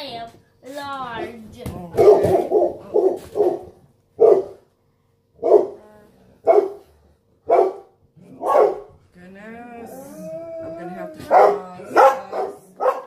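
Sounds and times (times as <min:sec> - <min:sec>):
dog barking: 0:02.0 - 0:04.7, 0:05.4 - 0:05.8, 0:06.4 - 0:08.9, 0:11.2 - 0:13.0.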